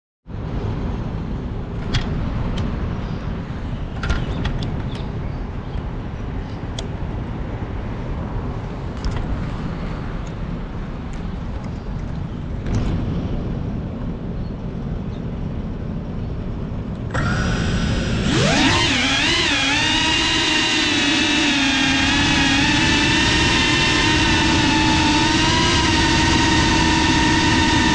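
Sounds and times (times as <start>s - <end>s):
low rumbling background noise: 0.3s - 27.9s
drone motors whining: 17.1s - 27.9s.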